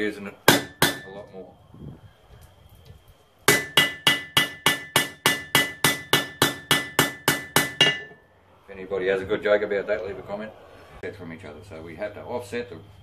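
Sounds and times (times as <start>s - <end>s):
hammer striking steel on anvil: 0.5s - 1.2s, 3.5s - 8.2s.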